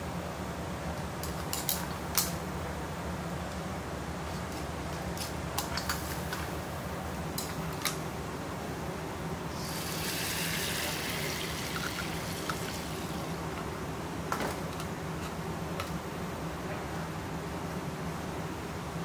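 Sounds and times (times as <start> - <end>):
steady low hum: 0.0 - 19.0
running water hissing: 9.5 - 13.4.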